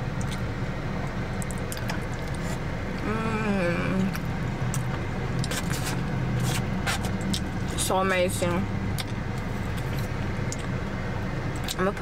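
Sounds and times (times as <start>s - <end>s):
car engine and air conditioning hum: 0.0s - 12.0s
chewing: 1.4s - 2.6s, 4.0s - 7.5s
person humming mmm: 3.0s - 4.2s.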